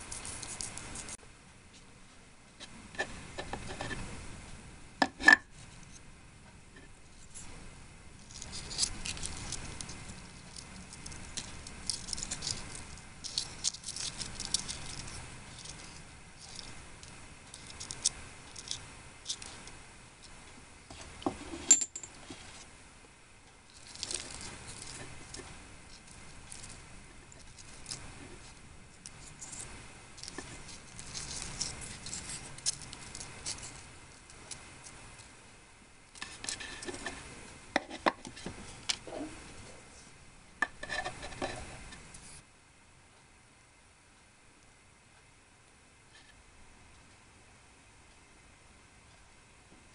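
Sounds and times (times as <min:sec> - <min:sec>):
fried potato sticks crackling: 0:08.2 - 0:19.8
paper crinkling: 0:23.7 - 0:34.6.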